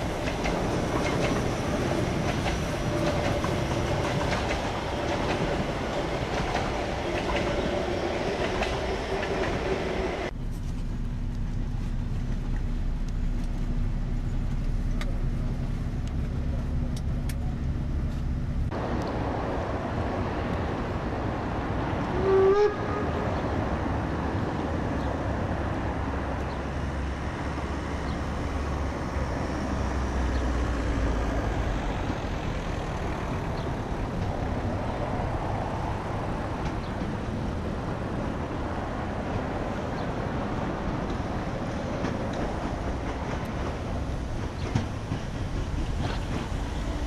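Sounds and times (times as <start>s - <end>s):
train rumbling: 0.0s - 47.0s
steam locomotive whistle blast: 22.2s - 23.1s.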